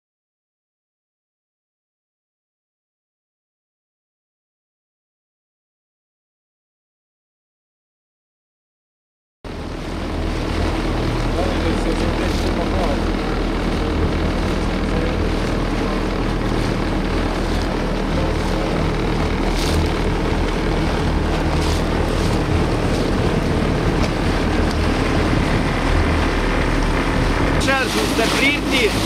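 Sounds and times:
motorboat engine drone: 9.5 - 29.0
water rushing along hull: 9.5 - 29.0.

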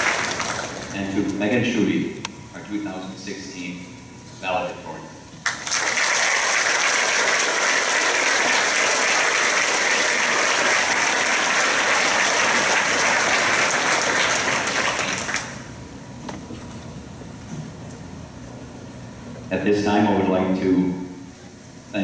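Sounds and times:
audience applause: 0.0 - 1.0, 5.4 - 15.7.

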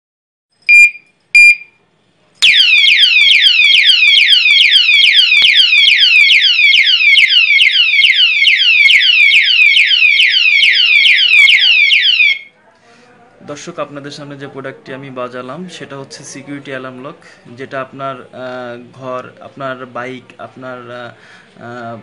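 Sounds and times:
short high beeps: 0.7 - 1.7
alarm siren wailing: 2.4 - 12.5.

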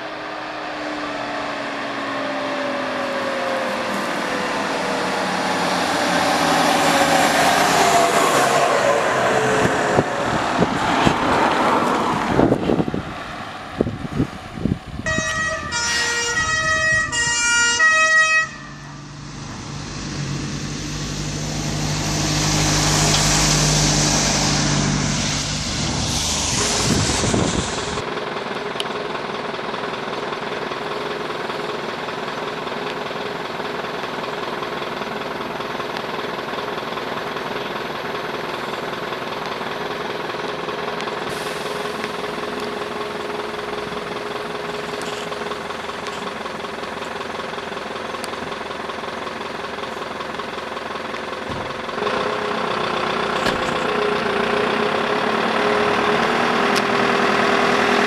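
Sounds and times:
two-tone emergency siren: 0.0 - 10.1, 15.0 - 19.1
diesel engine idling hum: 0.0 - 58.0
fire truck passing: 0.0 - 58.0.

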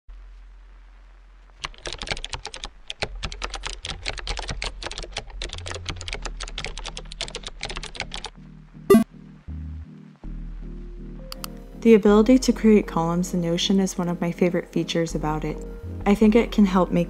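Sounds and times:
computer keyboard typing: 1.6 - 8.3.

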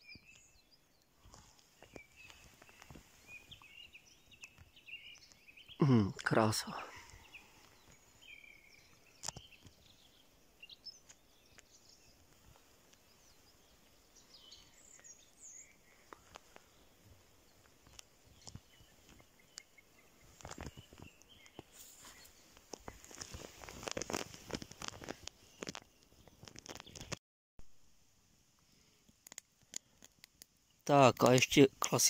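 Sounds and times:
faint bird chirps: 0.0 - 24.2
footsteps in deep snow: 20.0 - 25.2.

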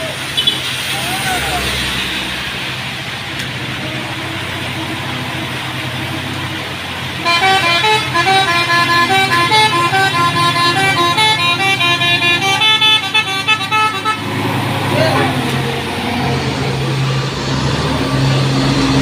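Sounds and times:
rain and wet tyres hissing: 0.0 - 7.2
diesel truck labouring uphill: 0.0 - 19.0
multi-tone musical horn: 7.2 - 14.3.

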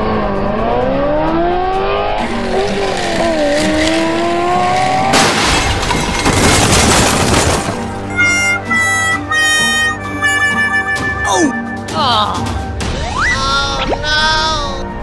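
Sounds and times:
race car engine revving: 0.2 - 5.1
loud rushing crackling noise: 2.2 - 8.0.

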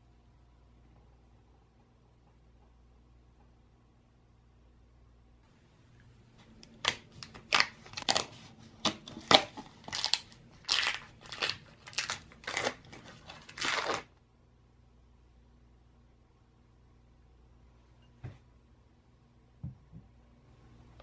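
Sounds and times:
foil wrapper crinkling: 6.7 - 14.1
paper carton opening: 10.8 - 14.1.

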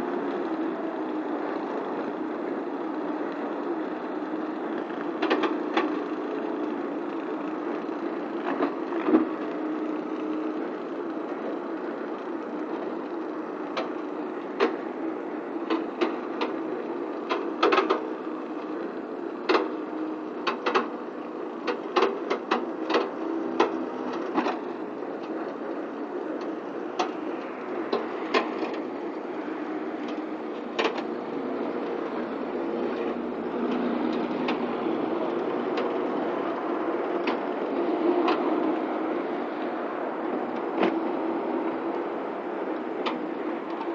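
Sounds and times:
sharp clicks and knocks: 13.7 - 15.0, 15.6 - 18.8, 19.4 - 19.8, 20.4 - 21.0, 26.3 - 39.0.

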